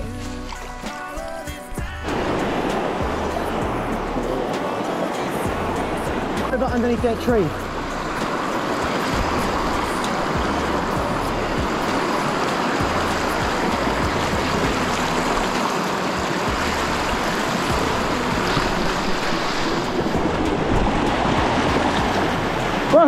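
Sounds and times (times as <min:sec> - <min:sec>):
river rushing over stones: 0:00.0 - 0:23.0
wind buffeting microphone: 0:02.0 - 0:23.0.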